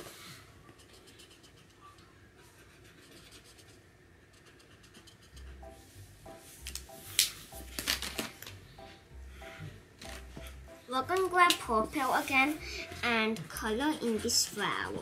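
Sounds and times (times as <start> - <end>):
markers scribbling on paper: 0.6 - 5.9, 11.6 - 15.0
faint background music with beat: 5.4 - 15.0.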